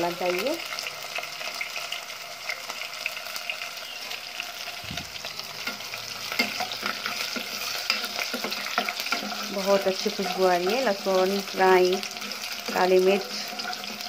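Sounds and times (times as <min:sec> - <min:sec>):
garlic frying in hot oil: 0:00.0 - 0:14.0
spatula scraping pan: 0:04.6 - 0:14.0.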